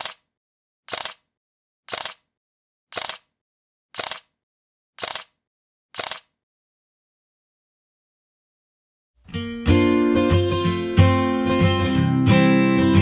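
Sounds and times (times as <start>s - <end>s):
camera shutter clicks: 0.9s - 1.3s, 1.9s - 2.3s, 2.9s - 3.3s, 4.0s - 4.3s, 5.0s - 5.4s, 6.0s - 6.3s.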